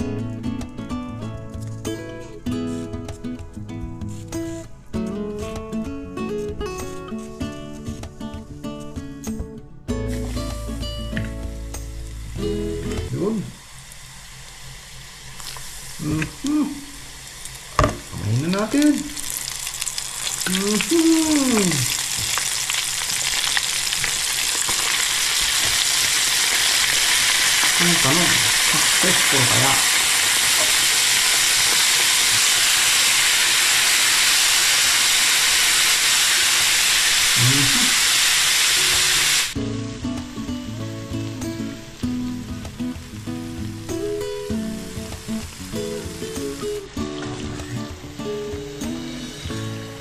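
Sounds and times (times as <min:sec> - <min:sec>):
music: 0:00.0 - 0:13.8, 0:38.7 - 0:50.0
mushrooms deep-frying in oil: 0:10.0 - 0:50.0.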